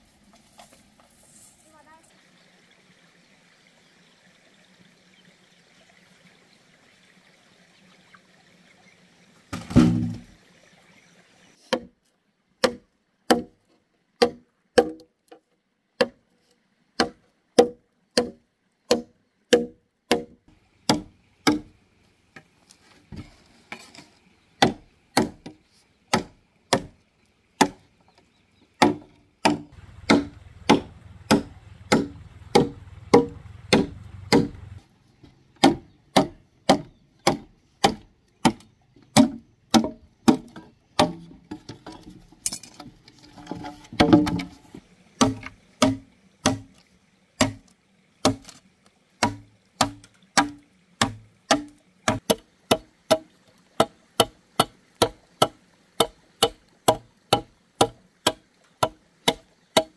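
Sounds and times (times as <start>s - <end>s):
cleaver chopping bamboo: 9.5s - 10.3s, 11.6s - 12.0s, 12.6s - 13.6s, 14.2s - 15.1s, 16.0s - 16.2s, 17.0s - 21.7s, 24.6s - 27.0s, 27.6s - 27.8s, 28.8s - 34.8s, 35.6s - 41.3s, 43.5s - 44.6s, 45.2s - 46.8s, 47.4s - 48.6s, 49.2s - 59.9s.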